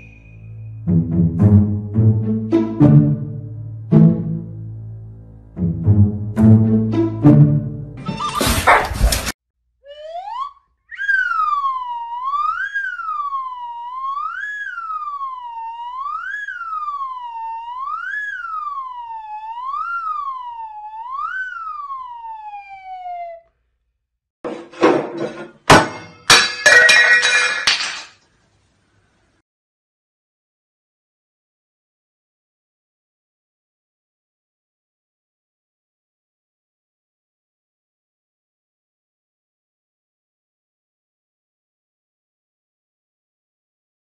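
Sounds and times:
electronic siren wail: 0:09.8 - 0:23.5
sharp knocks: 0:24.5 - 0:26.6.

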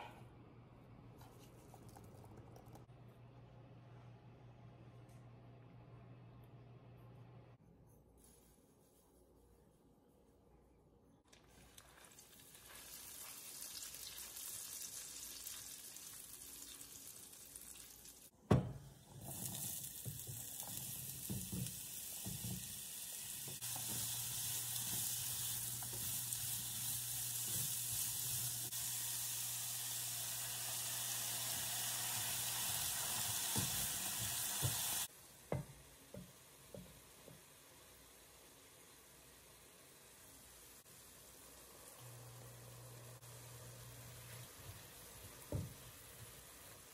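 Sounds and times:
butter and sugar sizzling in a pan: 0:11.3 - 0:18.3, 0:19.0 - 0:46.9.

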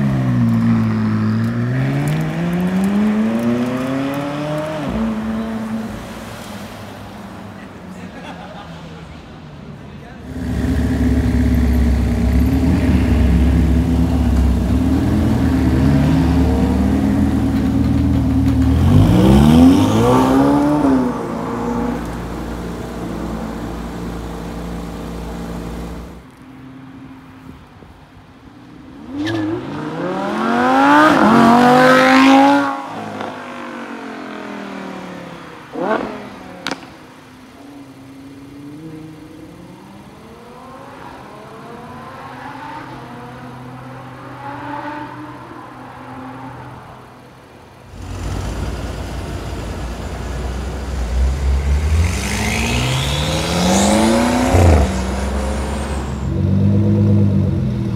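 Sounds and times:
car engine revving and accelerating: 0:00.6 - 0:06.8, 0:10.3 - 0:26.2, 0:29.0 - 0:36.9, 0:38.5 - 0:45.4, 0:47.9 - 0:57.9.

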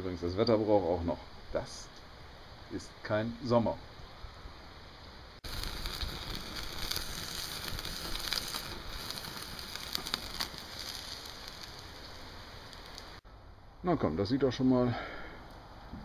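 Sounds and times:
wood fire crackling: 0:00.1 - 0:13.2
rain pattering on stone: 0:05.4 - 0:13.2.

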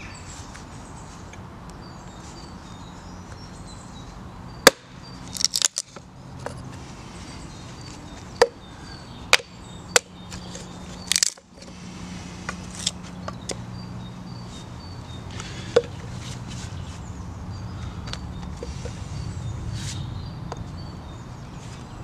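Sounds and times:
axe chopping kindling: 0:04.6 - 0:05.8.

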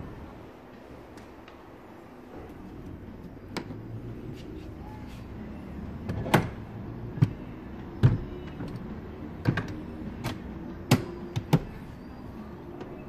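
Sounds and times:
car seat latches clicking and clunking: 0:06.0 - 0:07.4, 0:08.0 - 0:11.8.

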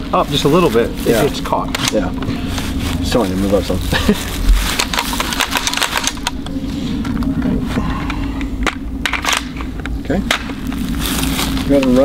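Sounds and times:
steady low hum: 0:00.0 - 0:12.0
rifle action clicking and rattling: 0:04.8 - 0:06.5, 0:08.6 - 0:09.6.

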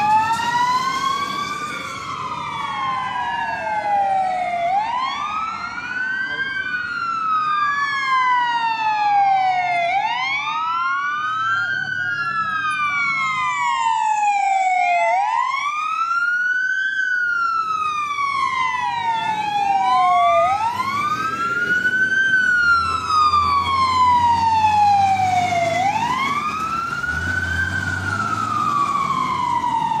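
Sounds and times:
heavy truck engine rumble: 0:00.0 - 0:04.8, 0:16.5 - 0:30.0
fire engine sirens wailing: 0:00.0 - 0:30.0.

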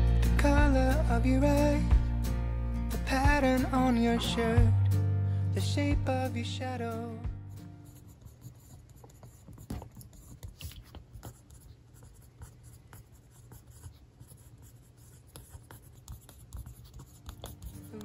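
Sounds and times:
pencil scratching on paper: 0:07.6 - 0:18.0.

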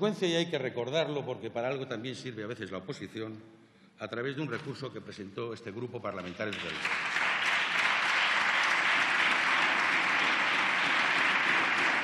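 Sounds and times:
crowd applauding: 0:06.5 - 0:12.0.

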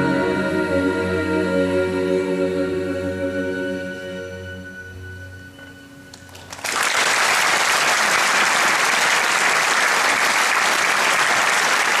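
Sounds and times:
large audience applauding: 0:06.1 - 0:12.0.

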